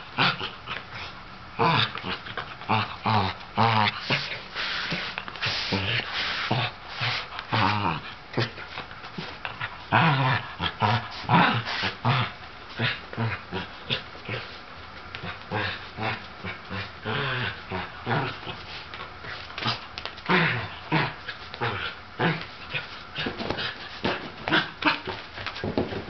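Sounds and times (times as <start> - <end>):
dog growling and whining: 0.0 - 4.4, 9.3 - 14.6, 15.2 - 18.7, 19.6 - 25.8.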